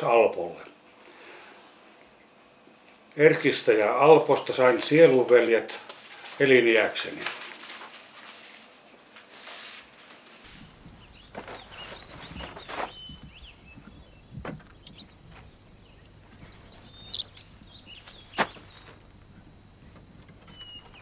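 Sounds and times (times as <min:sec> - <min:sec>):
faint steady hum: 0:00.0 - 0:21.0
small birds chirping: 0:10.6 - 0:21.0.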